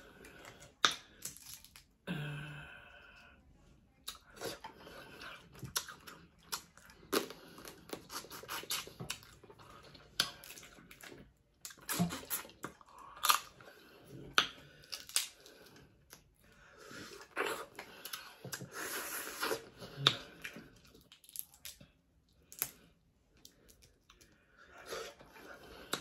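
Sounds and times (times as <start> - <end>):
crab shell cracking and crunching: 0.4 - 2.0, 14.4 - 15.5, 21.0 - 24.3
wet chewing and lip smacking: 4.0 - 13.6.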